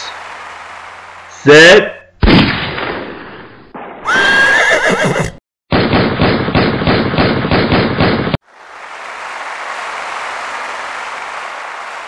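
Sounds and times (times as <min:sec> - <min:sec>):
horse whinny: 0:04.1 - 0:05.4.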